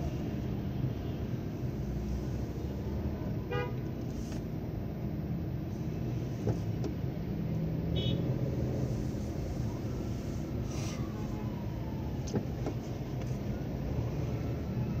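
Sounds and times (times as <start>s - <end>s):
low rumble of car engines: 0.0s - 15.0s
car horn toot: 3.5s - 3.8s, 7.9s - 8.2s.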